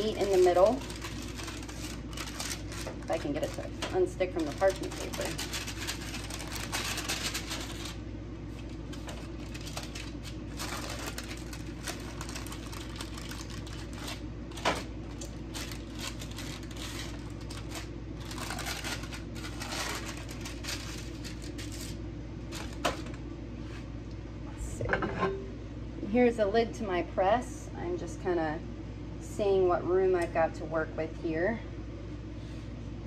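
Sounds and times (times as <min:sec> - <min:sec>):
parchment paper rustling and crinkling: 0:00.0 - 0:23.9
steady low hum: 0:00.0 - 0:33.0.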